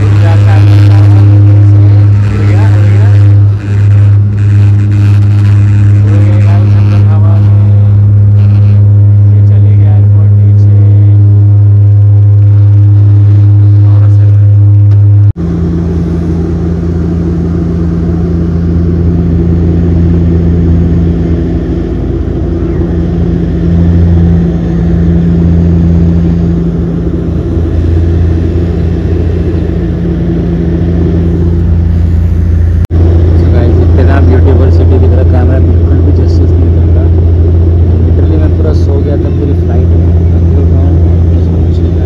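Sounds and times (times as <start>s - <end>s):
airplane cabin engine drone: 0.0s - 42.0s.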